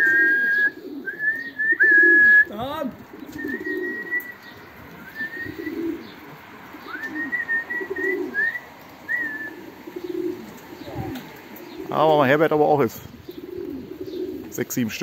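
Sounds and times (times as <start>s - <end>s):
pigeons cooing: 0.0s - 15.0s
high whistled notes: 5.0s - 5.9s, 6.9s - 9.6s.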